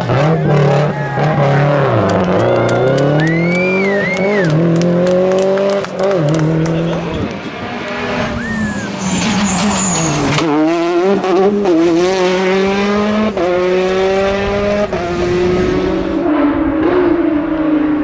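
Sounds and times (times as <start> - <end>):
rally car engine passing: 0.0 - 18.0
tire squeal: 2.4 - 4.6, 8.1 - 10.7.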